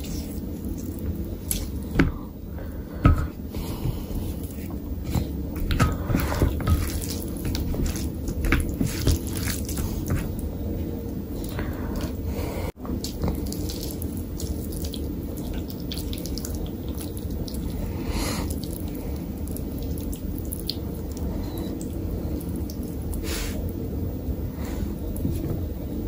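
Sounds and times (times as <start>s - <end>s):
fingers squishing rice: 3.7s - 10.5s, 12.9s - 23.6s.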